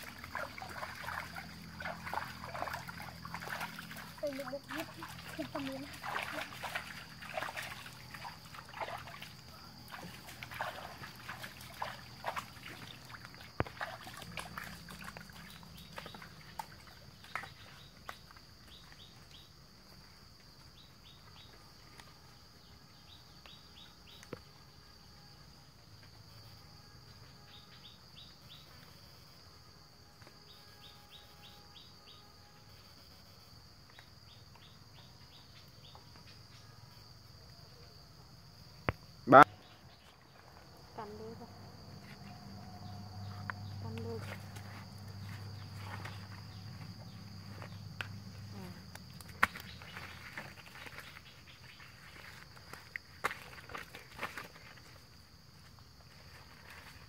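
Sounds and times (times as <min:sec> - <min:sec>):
hands splashing in muddy water: 0:00.0 - 0:17.7, 0:47.4 - 0:55.0.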